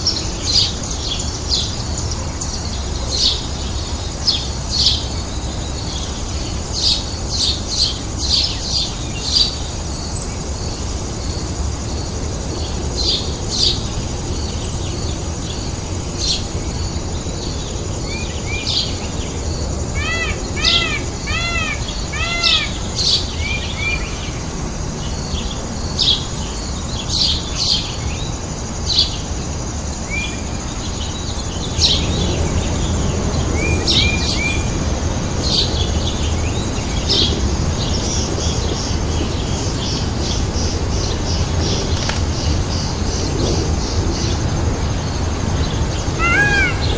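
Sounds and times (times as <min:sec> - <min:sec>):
birds chirping: 0:13.1 - 0:24.4, 0:35.6 - 0:46.9
repeated arched bird calls: 0:17.4 - 0:24.6, 0:45.6 - 0:46.9.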